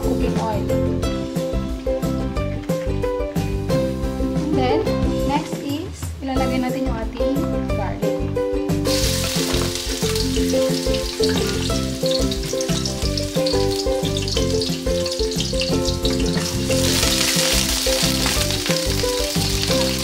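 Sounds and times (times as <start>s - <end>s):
background music: 0.0s - 20.0s
garlic sizzling in oil: 8.8s - 20.0s.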